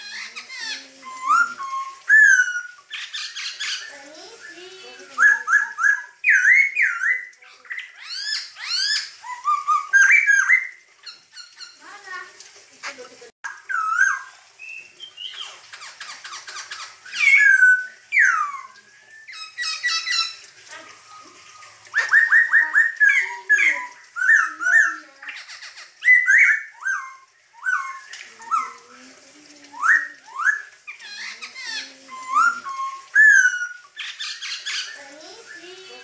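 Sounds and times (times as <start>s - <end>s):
bird singing whistled notes: 0.2s - 10.8s, 17.1s - 20.4s, 26.0s - 28.8s, 31.7s - 36.0s
bird's harsh rattling chatter: 15.2s - 17.9s.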